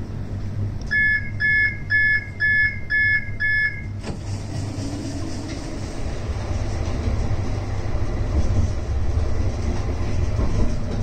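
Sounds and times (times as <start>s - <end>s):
low tram hum: 0.0s - 11.0s
electronic warning beeps: 0.9s - 4.0s
tram doors shutting thud: 3.9s - 11.0s.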